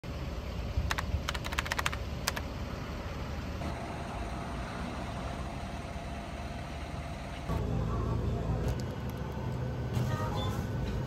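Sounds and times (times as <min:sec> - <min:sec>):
sharp clicks: 0:00.8 - 0:02.5.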